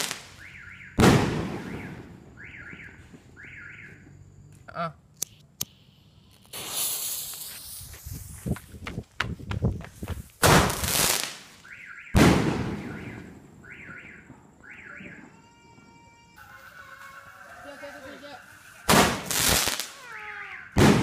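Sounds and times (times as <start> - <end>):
car alarm chirping: 0.4 - 1.0, 1.6 - 4.5, 11.6 - 15.8
loud firework bangs: 1.0 - 3.0, 10.4 - 11.5, 12.1 - 15.3, 18.8 - 21.0
firework hissing and crackling: 5.8 - 9.1, 9.8 - 11.6, 16.4 - 21.0.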